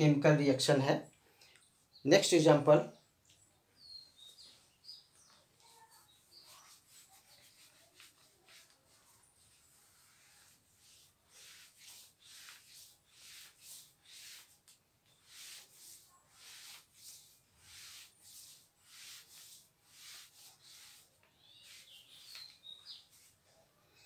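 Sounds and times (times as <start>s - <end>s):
marker squeaks: 4.0s - 23.4s
marker scratching on whiteboard: 5.3s - 23.4s.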